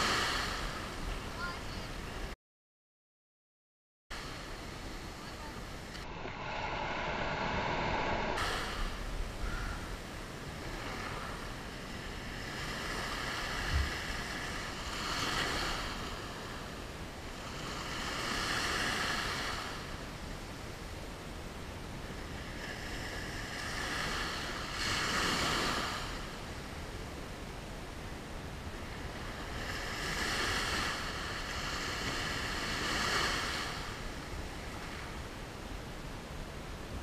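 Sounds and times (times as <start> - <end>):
small waves breaking on sand: 0.0 - 2.3, 4.2 - 20.2, 22.0 - 26.9, 28.0 - 35.3
wind on microphone: 4.2 - 20.2.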